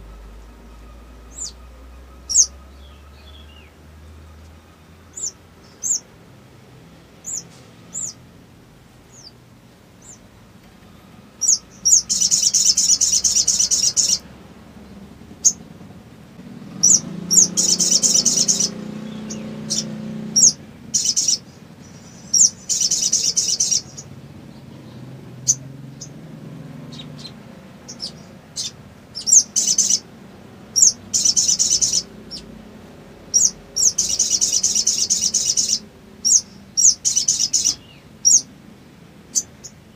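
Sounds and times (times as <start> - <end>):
sharp bird chirps: 0.0 - 6.1, 7.2 - 8.2, 11.4 - 14.3, 16.7 - 24.2, 26.8 - 30.1, 30.7 - 32.6, 33.3 - 38.5
sunbird chattering trills: 2.3 - 3.7, 5.1 - 6.1, 11.4 - 14.3, 14.9 - 15.6, 16.7 - 24.2, 26.8 - 30.1, 30.7 - 32.6, 33.2 - 38.5.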